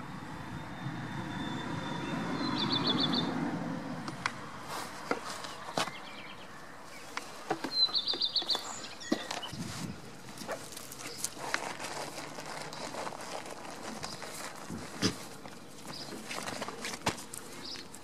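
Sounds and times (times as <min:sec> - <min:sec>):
goats shuffling and nibbling: 0:04.0 - 0:18.0
light hoof steps: 0:04.1 - 0:18.0.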